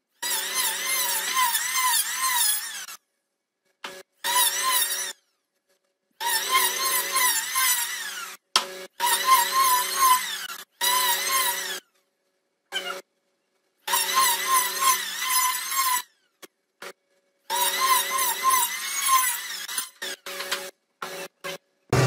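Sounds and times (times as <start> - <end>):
electric planer shaving wood: 6.3 - 8.3.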